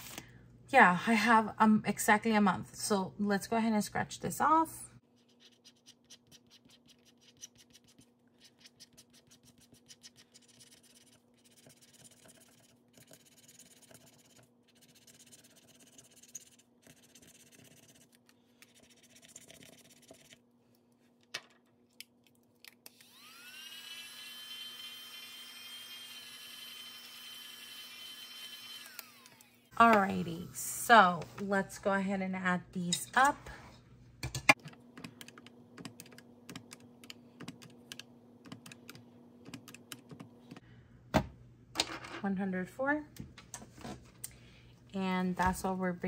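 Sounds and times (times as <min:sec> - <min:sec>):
small electric motor whining: 0:22.9 - 0:29.7.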